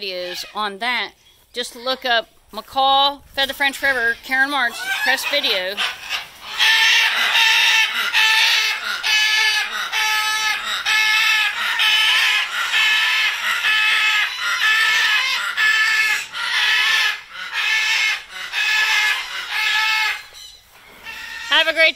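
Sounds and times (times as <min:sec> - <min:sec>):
parrot calling: 0:04.7 - 0:21.7.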